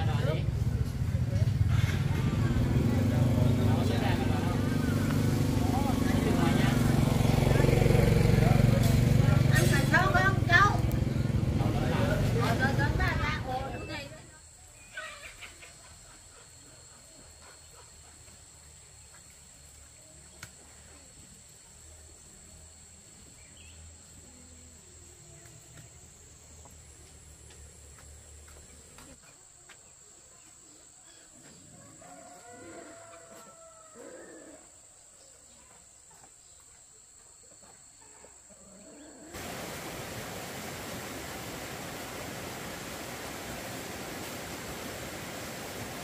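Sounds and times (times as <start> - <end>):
forest stream rushing: 1.8 - 13.7, 39.3 - 46.0.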